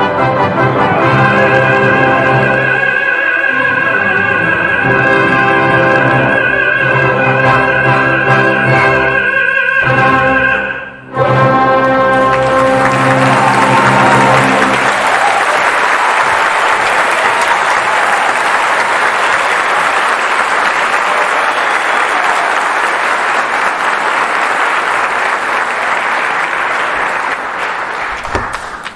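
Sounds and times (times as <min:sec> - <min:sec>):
audience applause: 0:11.8 - 0:28.9.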